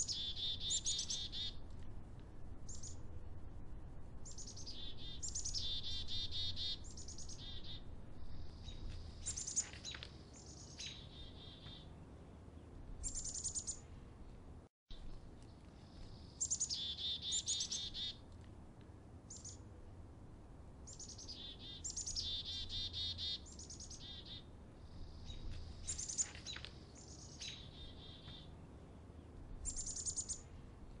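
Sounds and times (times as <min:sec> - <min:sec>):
chickadees chirping: 0:00.0 - 0:01.6, 0:04.2 - 0:11.9, 0:15.9 - 0:18.2, 0:20.9 - 0:28.5, 0:29.6 - 0:30.4.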